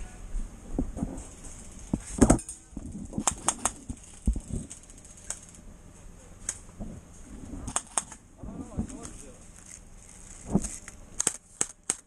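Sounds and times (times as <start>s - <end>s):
airsoft gun shots snapping: 3.2s - 3.9s, 7.7s - 8.2s, 10.5s - 12.0s.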